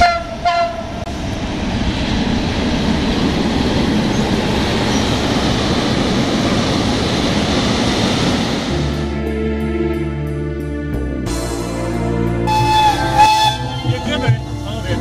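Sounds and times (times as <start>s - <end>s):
train wheels rumbling and rattling: 0.0s - 9.0s
train signal toots: 12.5s - 14.5s.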